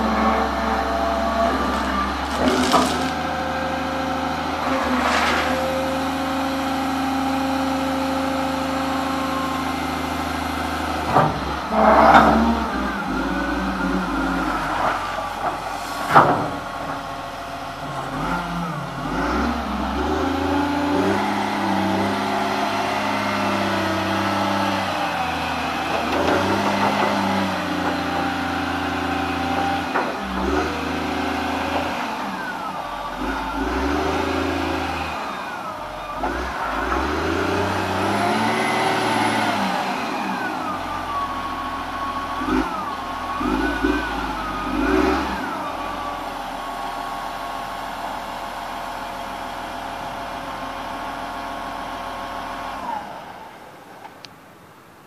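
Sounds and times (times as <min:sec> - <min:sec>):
diesel engine revving: 0:00.0 - 0:53.6
whine sliding up and down: 0:04.5 - 0:06.7, 0:11.0 - 0:17.0.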